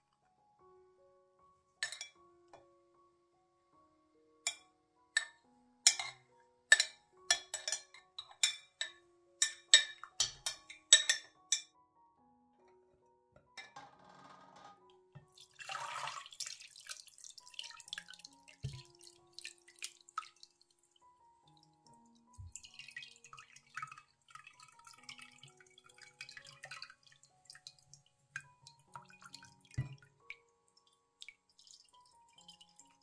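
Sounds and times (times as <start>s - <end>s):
quiet background music: 0.0s - 33.0s
liquid splashing and dripping: 15.3s - 21.7s, 22.3s - 33.0s.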